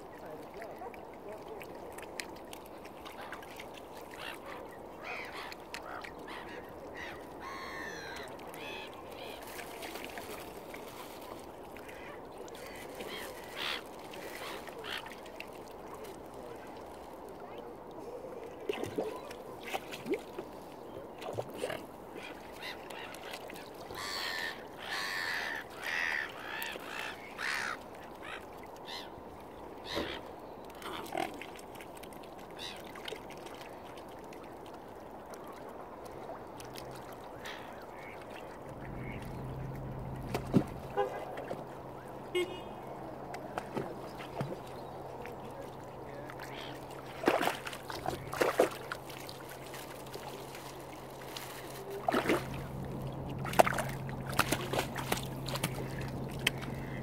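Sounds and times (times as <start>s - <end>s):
waterfowl calling: 3.0s - 10.4s, 11.2s - 15.4s, 21.6s - 29.2s, 29.8s - 31.6s, 37.0s - 52.8s, 53.4s - 57.0s
low steady hum: 50.6s - 57.0s.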